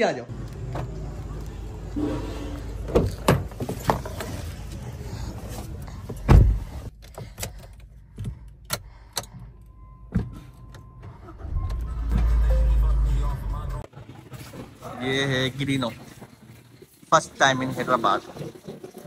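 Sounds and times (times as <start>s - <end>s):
low engine rumble: 7.9s - 16.9s
steady beep: 9.7s - 13.8s.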